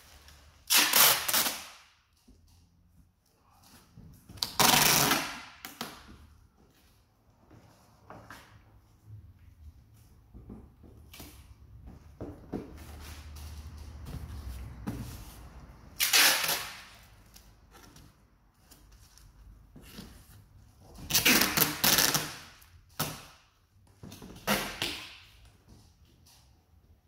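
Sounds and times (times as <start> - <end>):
packing tape ripping off roll: 0.6 - 2.0, 4.4 - 6.0, 16.0 - 17.5, 21.1 - 23.4.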